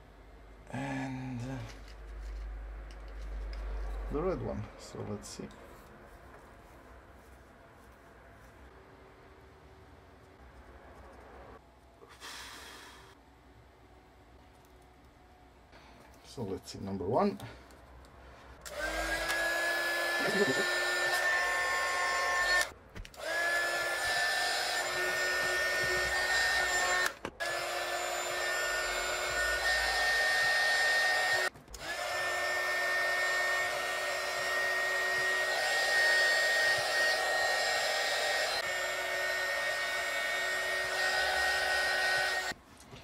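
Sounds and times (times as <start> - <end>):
heat gun fan whine: 18.6 - 42.6.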